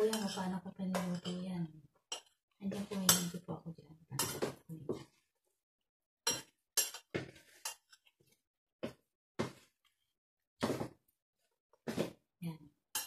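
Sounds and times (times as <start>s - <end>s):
metal spoon clinking in a bowl: 0.0s - 1.4s, 6.3s - 8.0s.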